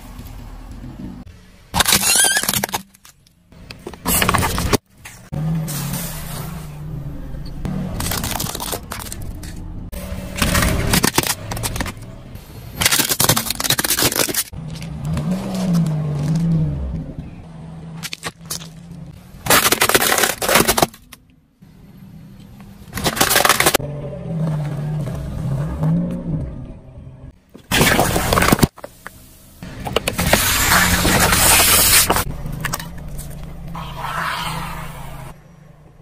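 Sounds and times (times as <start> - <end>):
tyre crushing objects: 10.2 - 12.1, 12.8 - 16.6, 18.0 - 21.1, 22.9 - 23.8, 27.6 - 28.9, 29.8 - 33.0.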